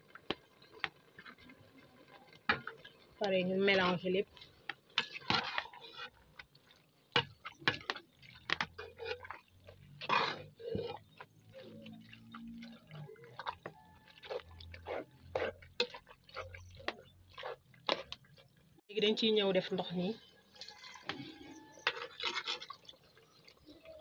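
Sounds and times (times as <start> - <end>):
spoon scraping metal pot: 3.6 - 6.5, 7.2 - 18.4, 20.5 - 23.0
wet squelching: 5.0 - 18.7.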